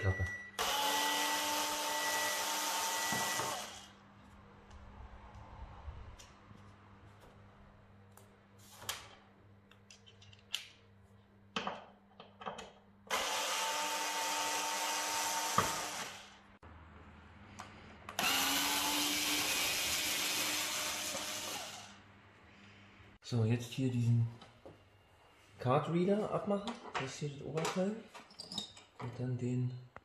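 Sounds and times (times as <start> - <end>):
cordless screwdriver whirring: 18.2 - 21.9.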